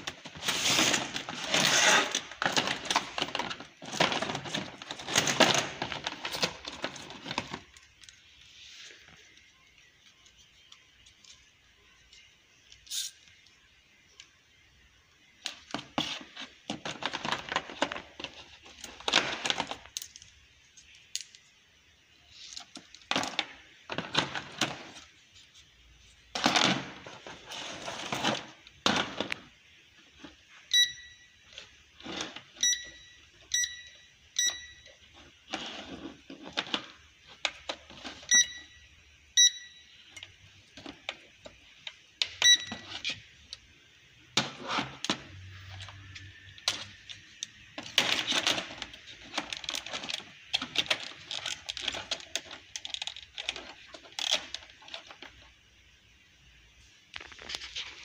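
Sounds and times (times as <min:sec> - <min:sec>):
plastic parts clicking: 0:46.6 - 0:55.1
packaging rustling: 0:57.1 - 0:58.0.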